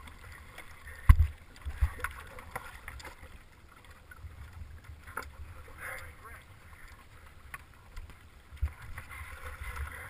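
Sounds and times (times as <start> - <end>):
water sloshing: 0.0 - 10.0
knocks against hull: 1.0 - 2.1.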